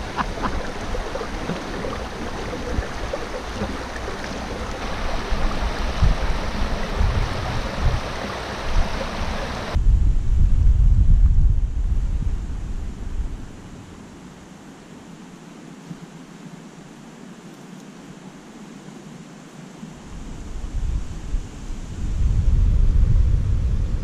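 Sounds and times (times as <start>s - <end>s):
water rushing over stones: 0.0s - 9.8s
wind rumble on microphone: 0.0s - 14.4s, 19.9s - 24.0s.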